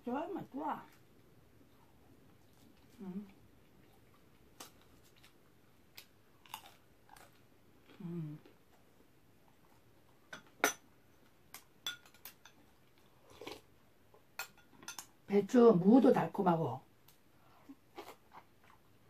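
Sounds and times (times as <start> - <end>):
person humming: 3.0 - 3.4, 8.0 - 8.5.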